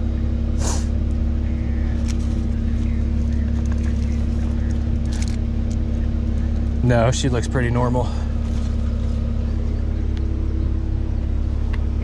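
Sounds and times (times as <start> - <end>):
idling car hum: 0.0 - 12.0
faint rustles: 1.8 - 6.8, 8.2 - 11.9.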